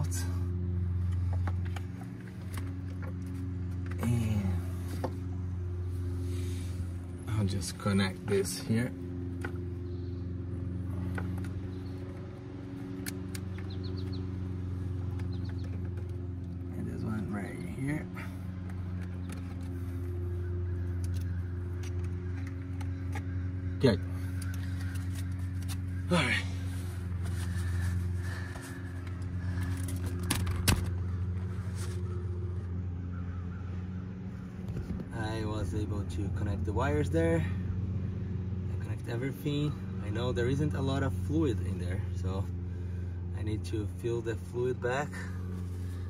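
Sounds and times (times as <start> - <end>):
steady low hum: 0.0 - 46.0
small bird chirps: 13.4 - 14.4.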